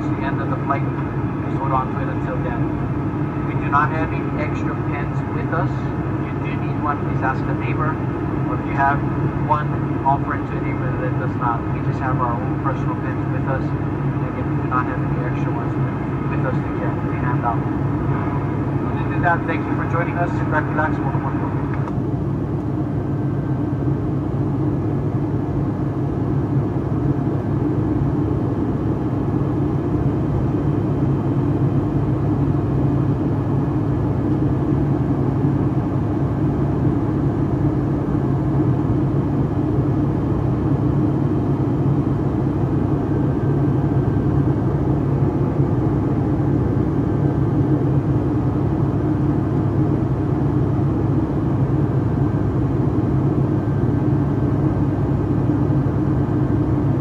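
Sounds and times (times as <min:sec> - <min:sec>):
jet engines droning in cabin: 0:00.0 - 0:57.0.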